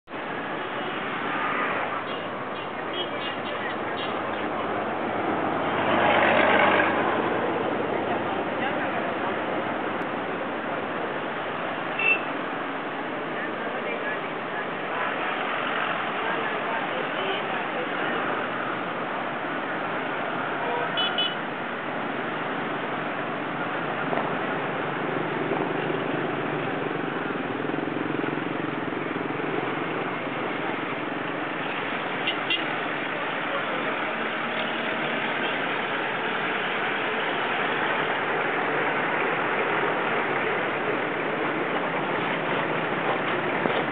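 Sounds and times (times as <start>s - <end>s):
motorcycle traffic: 0.0s - 43.9s
short horn beep: 12.0s - 12.3s.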